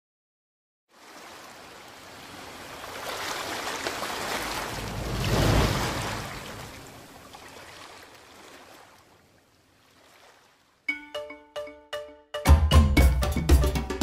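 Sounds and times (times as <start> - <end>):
ocean waves rushing: 0.9 - 10.6.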